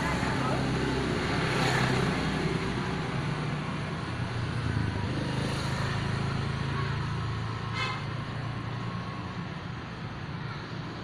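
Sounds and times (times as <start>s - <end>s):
engine and traffic rumble: 0.0s - 11.0s.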